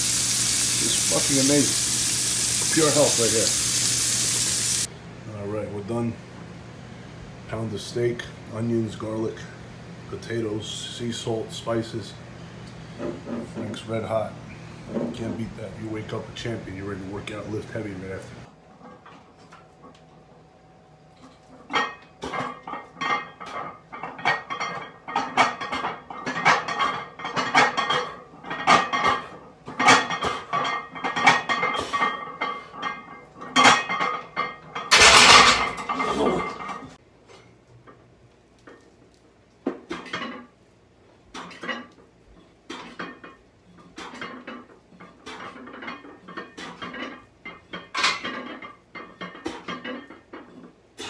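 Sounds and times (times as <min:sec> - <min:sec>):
weight plates clinking: 0:29.8 - 0:36.9.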